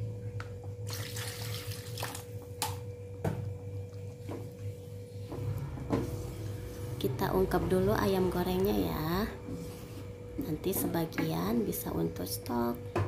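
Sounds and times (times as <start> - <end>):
steady low hum: 0.0 - 13.0
water pouring: 0.8 - 2.3.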